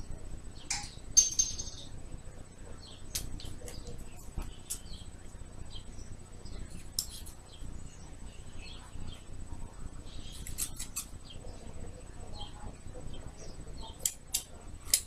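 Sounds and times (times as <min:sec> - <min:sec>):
scissors snipping hair: 0:06.8 - 0:07.4, 0:10.3 - 0:11.1, 0:14.0 - 0:15.0.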